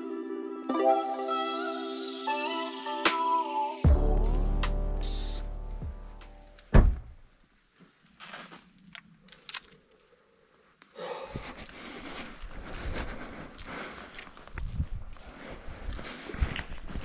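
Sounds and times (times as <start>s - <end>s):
footsteps on dirt trail: 7.6s - 8.9s, 11.3s - 17.0s
faint clicks and rustles: 7.6s - 17.0s.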